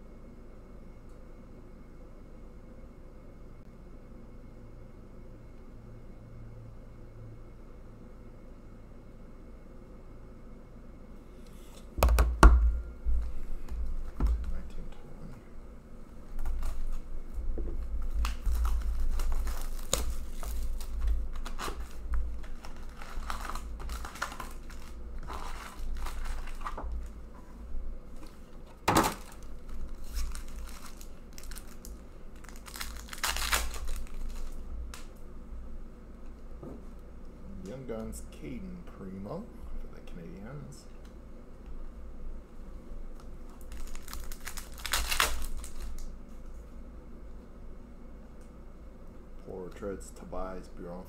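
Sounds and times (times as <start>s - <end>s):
foil wrappers crinkling and tearing: 16.3s - 17.1s, 17.8s - 27.2s, 28.1s - 35.1s, 43.1s - 46.1s.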